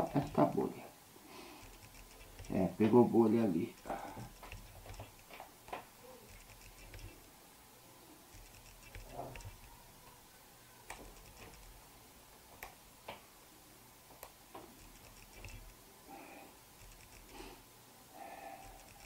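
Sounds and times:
clicks and taps on camera body: 0:03.8 - 0:07.2, 0:08.4 - 0:09.7.

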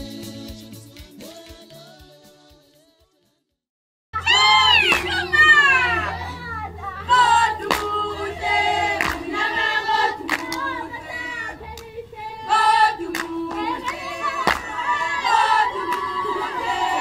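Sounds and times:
women singing in chorus: 0:04.3 - 0:17.0.

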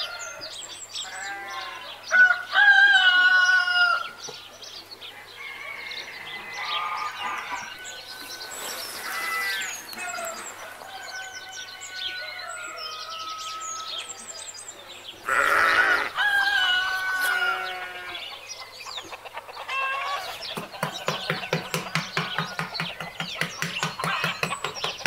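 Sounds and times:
birds chirping: 0:00.0 - 0:25.0
loud livestock call: 0:15.2 - 0:18.3
rapid animal clucks: 0:18.3 - 0:25.0.

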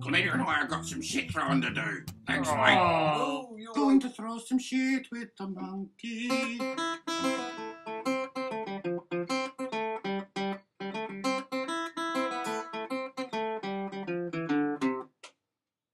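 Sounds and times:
acoustic guitar picking: 0:00.0 - 0:03.0, 0:06.2 - 0:15.1.

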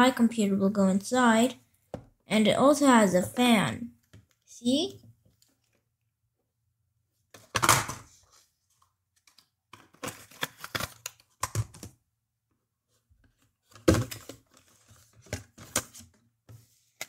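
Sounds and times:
cardboard and plastic rustling: 0:07.4 - 0:12.0, 0:12.9 - 0:17.0.

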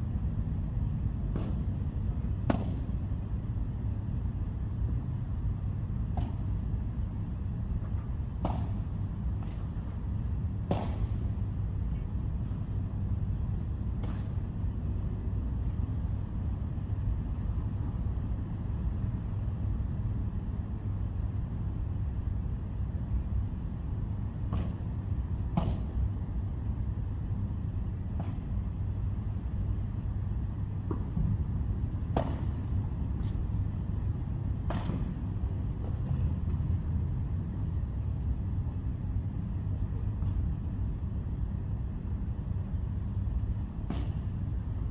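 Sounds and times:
padel ball struck by rackets: 0:02.5 - 0:02.9, 0:10.7 - 0:11.1.

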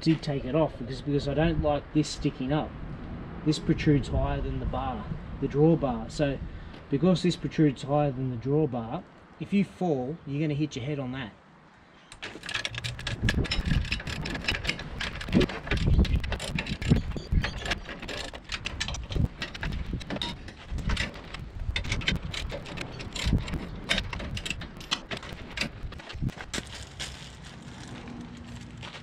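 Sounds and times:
socket ratchet clicking: 0:12.1 - 0:25.9
metal knocks: 0:12.2 - 0:26.7.

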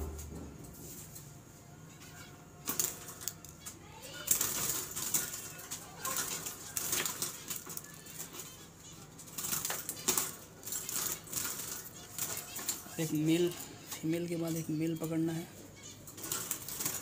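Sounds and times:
wing flutters: 0:04.0 - 0:08.6, 0:09.2 - 0:13.5.

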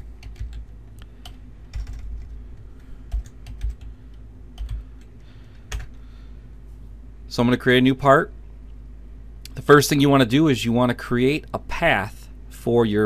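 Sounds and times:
keyboard typing: 0:00.0 - 0:03.9, 0:04.6 - 0:05.1, 0:05.7 - 0:06.0
steady low hum: 0:00.0 - 0:13.0.

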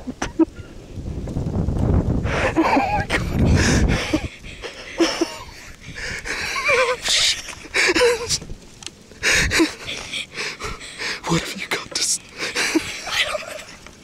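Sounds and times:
people breathing hard: 0:02.2 - 0:08.4, 0:09.1 - 0:13.8.

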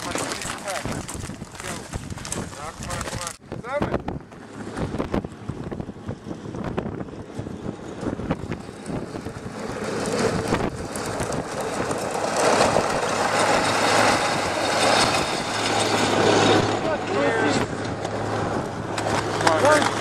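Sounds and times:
snowcat engine driving past: 0:05.4 - 0:20.0.

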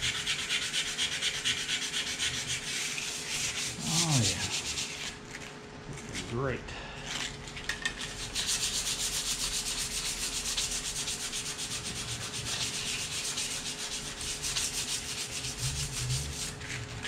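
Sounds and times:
abrasive pad sanding steel: 0:00.0 - 0:05.2, 0:08.0 - 0:17.0.

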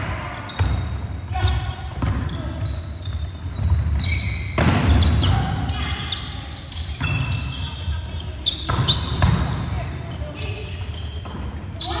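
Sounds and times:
volleyball hit echoing: 0:04.5 - 0:05.2.

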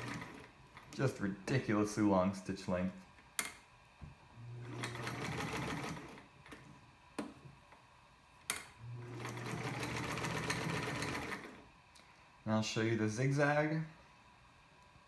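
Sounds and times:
sewing machine stitching: 0:00.0 - 0:00.5, 0:04.6 - 0:06.3, 0:08.9 - 0:11.6.

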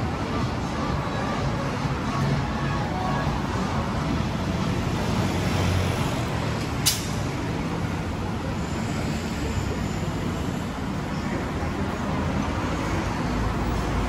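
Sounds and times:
passing traffic: 0:00.0 - 0:14.0
sharp click: 0:06.8 - 0:07.2.

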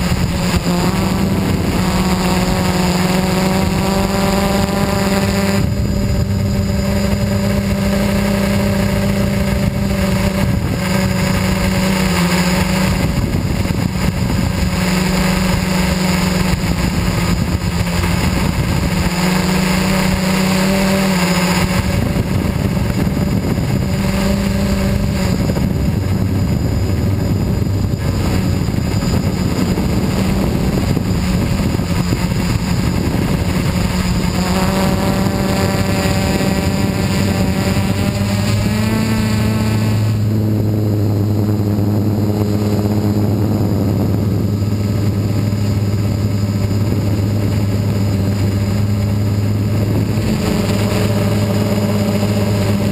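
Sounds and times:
drone motors whining: 0:00.0 - 0:52.9
rushing wind: 0:00.0 - 0:52.9.

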